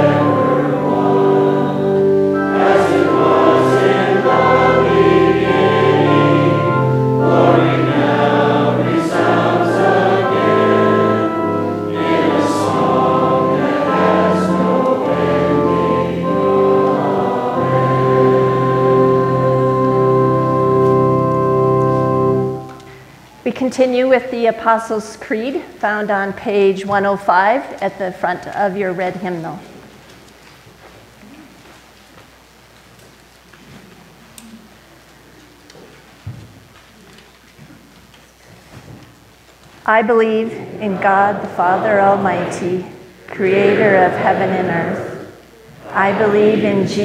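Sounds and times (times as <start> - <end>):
congregation singing a hymn: 0.0 - 23.1, 39.9 - 47.0
organ chords: 0.0 - 23.6, 38.8 - 47.0.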